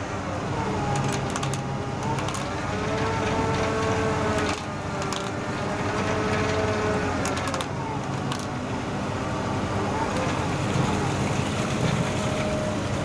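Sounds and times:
drilling rig engine whine: 0.0s - 13.0s
metallic clicks: 0.9s - 2.6s.

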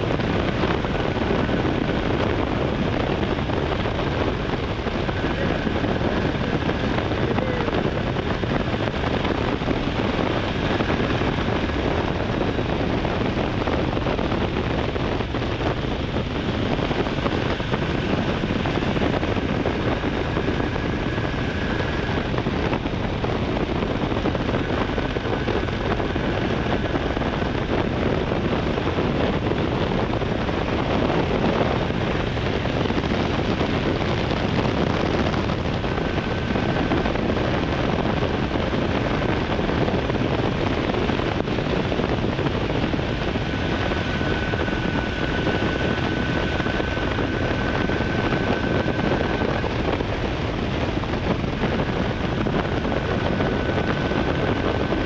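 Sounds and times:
wind rush on microphone: 0.0s - 55.0s.

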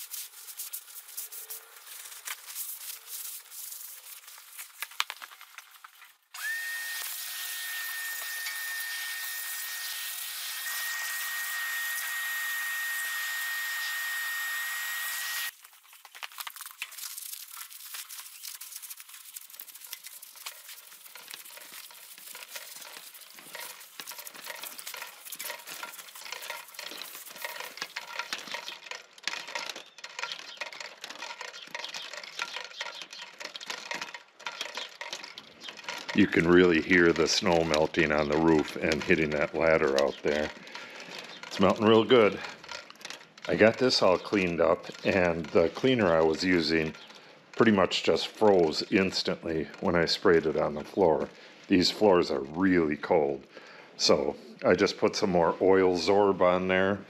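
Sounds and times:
faint ticks and patters: 15.6s - 36.9s.

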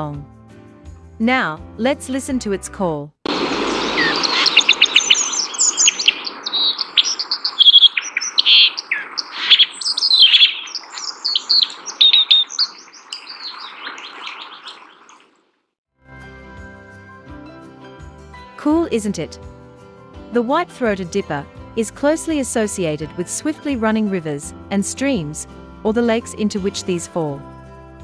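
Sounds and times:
steady rushing noise: 3.3s - 8.9s
bird chirping and trilling: 3.3s - 15.4s.

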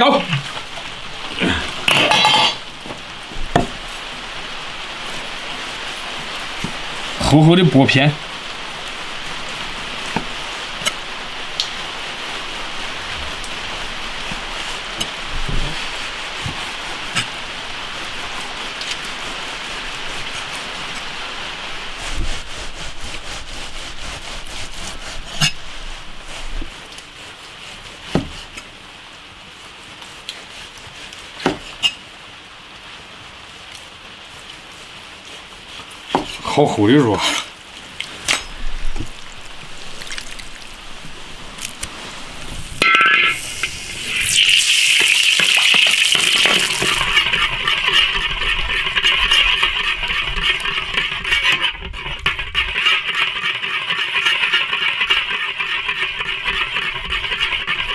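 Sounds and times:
steady hiss: 0.0s - 51.6s.

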